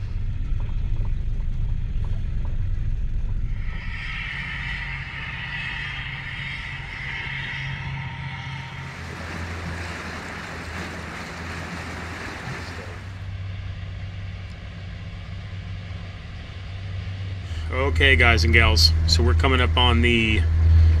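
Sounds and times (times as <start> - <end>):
boat diesel engine drone: 0.0 - 21.0
wind and water rushing: 8.8 - 13.3.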